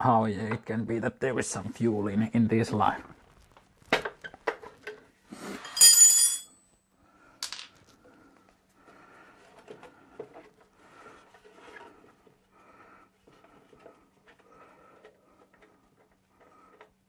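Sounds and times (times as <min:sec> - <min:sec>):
ringing metallic clink: 0:05.6 - 0:06.6.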